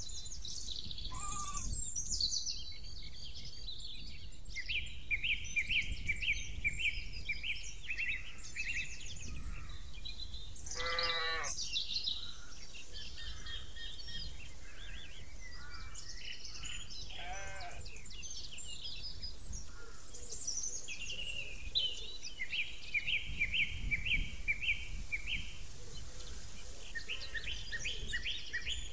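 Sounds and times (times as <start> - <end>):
small birds singing: 0.0 - 28.9
sheep bleating: 1.1 - 1.7, 10.7 - 11.5, 17.1 - 17.8.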